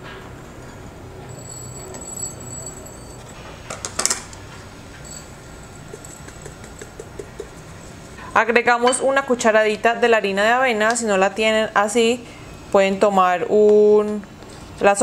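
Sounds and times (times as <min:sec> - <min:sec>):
glass jar clinking on bowl: 0:01.3 - 0:03.4, 0:05.0 - 0:07.6.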